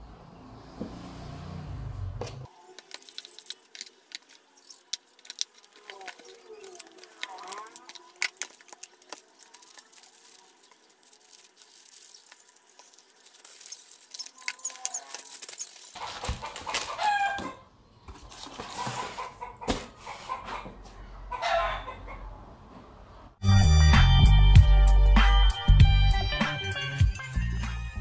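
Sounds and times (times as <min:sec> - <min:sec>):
bubble wrap crinkling: 0:02.8 - 0:17.0
loud music: 0:23.4 - 0:28.0.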